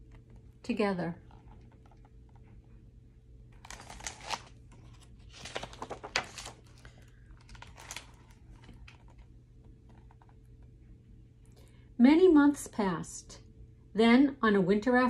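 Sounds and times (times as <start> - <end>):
book pages turning: 3.6 - 10.5.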